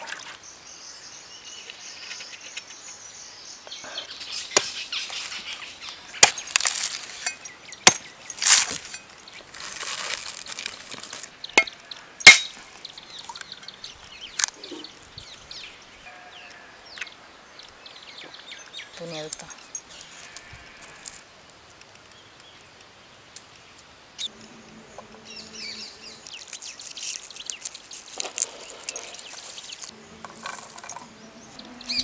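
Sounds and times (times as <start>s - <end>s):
machete striking coconut: 12.3s - 12.6s.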